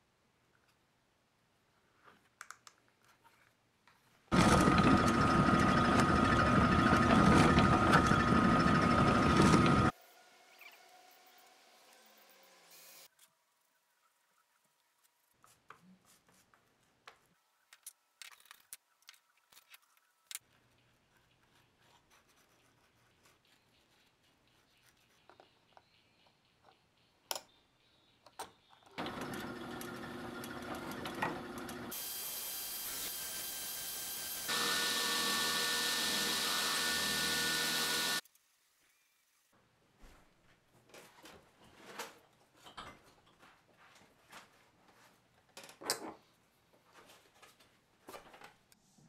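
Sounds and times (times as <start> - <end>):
small power tool motor running: 4.3 - 9.9, 29.0 - 38.2.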